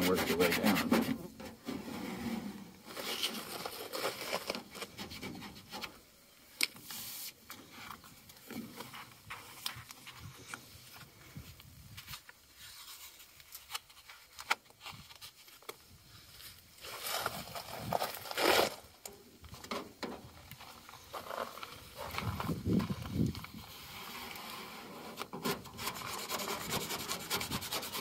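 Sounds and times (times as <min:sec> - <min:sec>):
squeegee rubbing over paper: 0:00.0 - 0:01.1, 0:23.7 - 0:28.0
paper crinkling and peeling: 0:02.9 - 0:05.5, 0:16.8 - 0:18.8.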